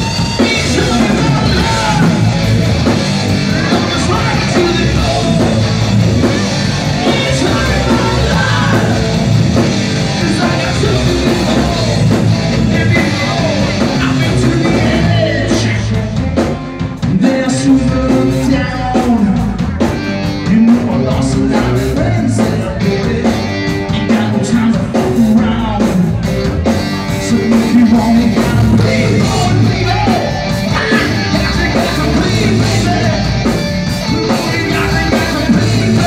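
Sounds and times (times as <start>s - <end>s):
bass guitar: 0.0s - 36.0s
drum kit: 0.0s - 36.0s
electric guitar: 0.0s - 36.0s
man singing into microphone: 0.2s - 2.4s, 3.5s - 5.6s, 7.0s - 9.1s, 10.1s - 12.1s, 12.7s - 16.2s, 17.0s - 19.7s, 20.4s - 26.2s, 27.2s - 33.4s, 34.1s - 36.0s.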